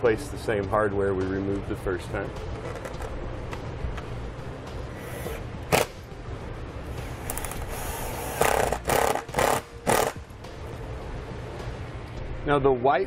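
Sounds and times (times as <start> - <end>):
cordless driver whirring: 7.2 - 10.2.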